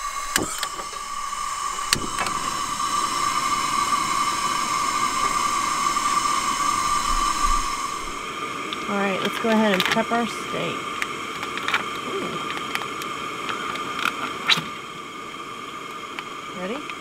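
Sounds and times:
steady high tone: 0:00.0 - 0:09.2
gas burners hissing: 0:00.0 - 0:17.0.

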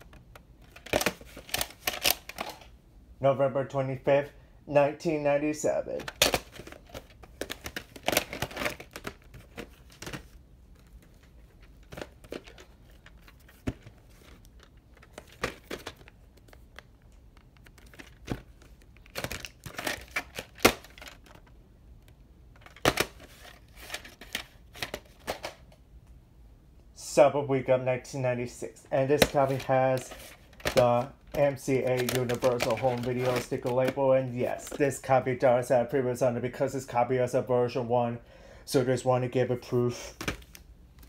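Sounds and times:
plastic cases clicking and snapping: 0:00.0 - 0:02.7, 0:06.0 - 0:25.8, 0:29.1 - 0:34.9
plastic rustling: 0:06.0 - 0:21.6, 0:22.5 - 0:25.6, 0:28.9 - 0:35.0.

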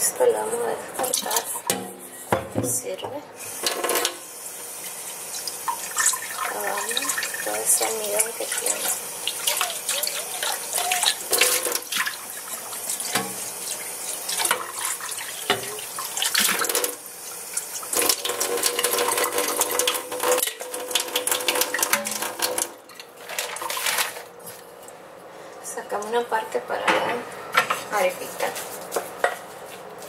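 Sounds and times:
water splashing through strainer: 0:05.4 - 0:24.2.

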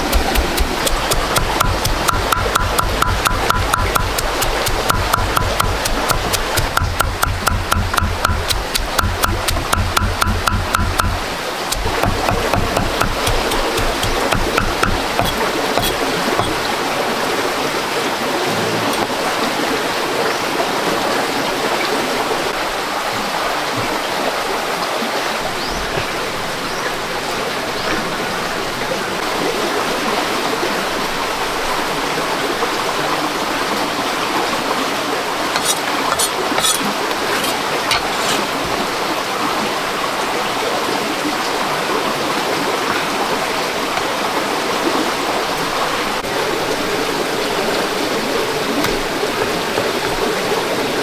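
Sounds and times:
running water: 0:00.0 - 0:51.0.

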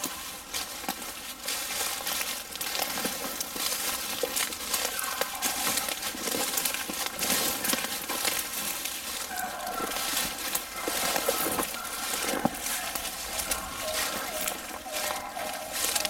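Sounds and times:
footsteps crunching through dry leaves: 0:00.0 - 0:16.0
twigs snapping and scraping: 0:00.0 - 0:16.0.

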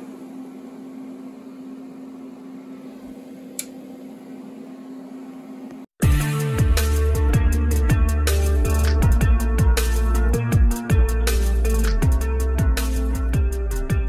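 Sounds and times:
machine hum: 0:00.0 - 0:05.9
electronic music: 0:06.0 - 0:14.0.

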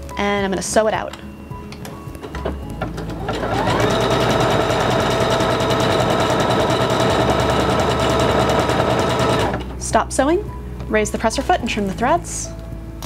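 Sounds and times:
sewing machine motor whining: 0:02.4 - 0:09.6.

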